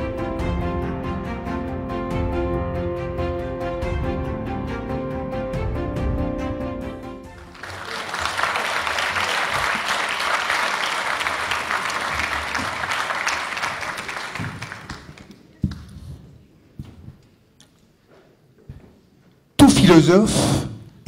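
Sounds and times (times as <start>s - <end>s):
music: 0.0s - 14.4s
audience applauding: 7.3s - 15.6s.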